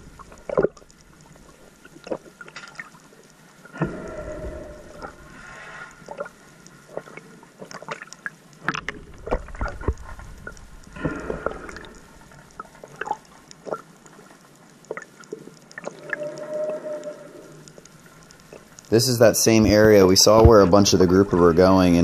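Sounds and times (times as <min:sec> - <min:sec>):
water gurgling underwater: 0:00.0 - 0:18.8.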